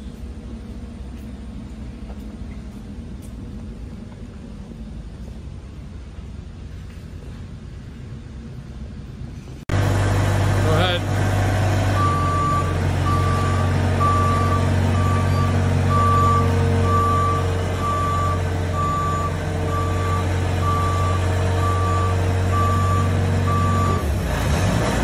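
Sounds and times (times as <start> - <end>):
forklift engine running: 0.0 - 25.0
backup alarm beeping: 12.0 - 24.1.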